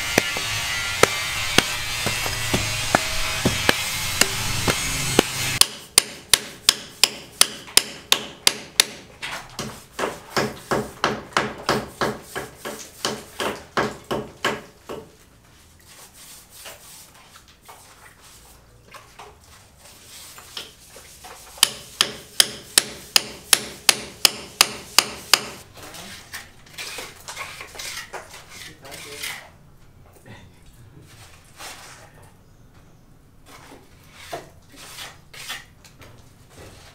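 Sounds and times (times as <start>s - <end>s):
hammer blows: 0.0s - 7.2s
scattered knocks: 0.1s - 5.6s.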